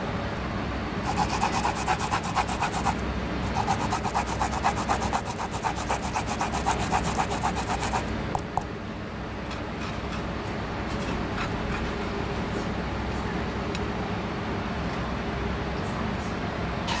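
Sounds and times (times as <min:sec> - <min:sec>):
root grated on metal grater: 0:01.1 - 0:08.0.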